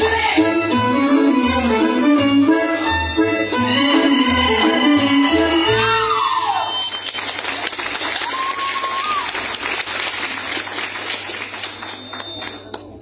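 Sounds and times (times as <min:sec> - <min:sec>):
dance music: 0:00.0 - 0:06.8
audience clapping: 0:06.8 - 0:13.0.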